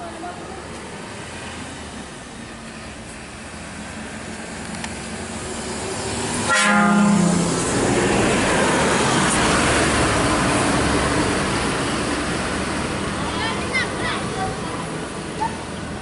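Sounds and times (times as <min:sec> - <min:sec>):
bus engine and tyres passing: 0:00.0 - 0:16.0
air horn blast: 0:06.5 - 0:07.6.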